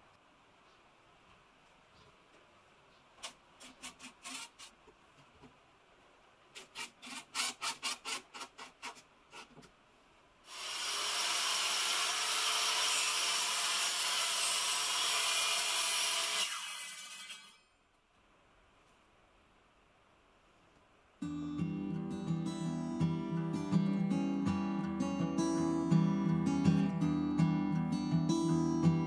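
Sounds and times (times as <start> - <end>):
saw blade winding down: 10.5 - 17.6
circular saw cutting: 10.5 - 17.7.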